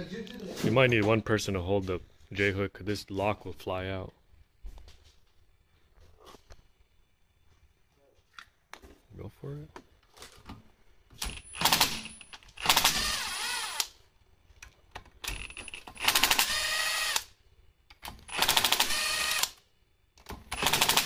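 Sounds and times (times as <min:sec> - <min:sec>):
impact driver running: 0:11.2 - 0:14.0, 0:15.3 - 0:17.3, 0:18.2 - 0:19.6, 0:20.5 - 0:21.0.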